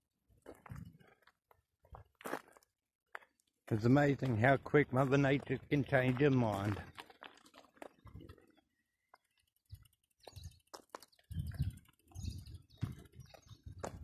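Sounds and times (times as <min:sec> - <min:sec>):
footsteps on dry dirt: 0:00.3 - 0:14.0
faint birds chirping: 0:07.9 - 0:14.0.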